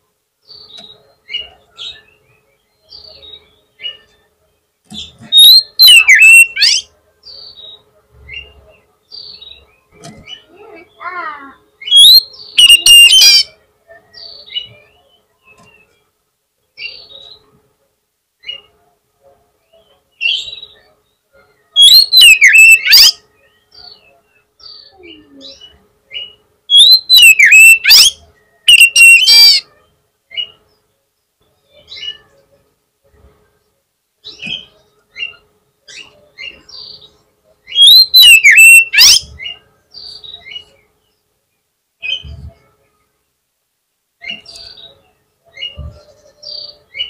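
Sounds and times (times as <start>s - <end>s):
bird chirps: 4.9s - 16.0s, 19.7s - 32.6s, 34.2s - 41.2s, 44.2s - 47.0s
bird whistling song: 5.0s - 7.8s, 11.8s - 13.5s, 21.8s - 23.2s, 25.6s - 29.6s, 37.7s - 39.6s.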